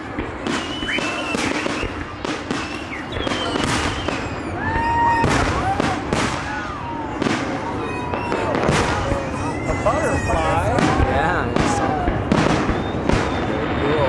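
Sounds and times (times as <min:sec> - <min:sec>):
fireworks bursting: 0:00.0 - 0:14.0
fireworks whistling: 0:00.0 - 0:14.0.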